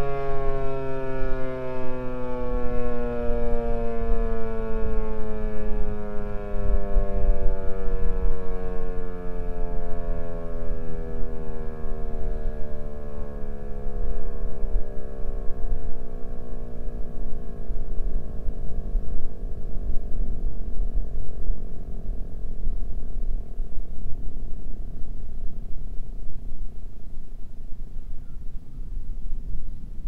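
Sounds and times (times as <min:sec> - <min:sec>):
warning siren winding down: 0:00.0 - 0:20.4
wind on microphone: 0:14.0 - 0:30.0.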